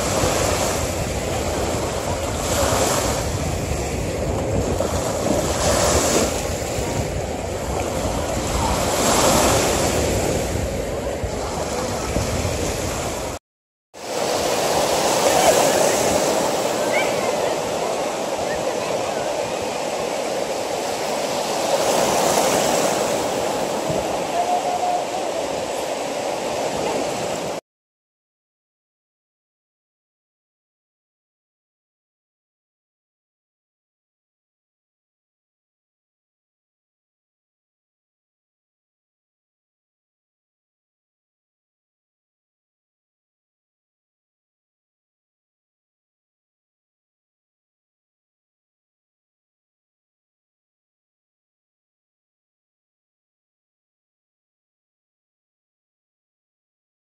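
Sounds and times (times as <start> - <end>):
waves washing onto sandy shore: 0.0 - 13.4, 14.0 - 27.6.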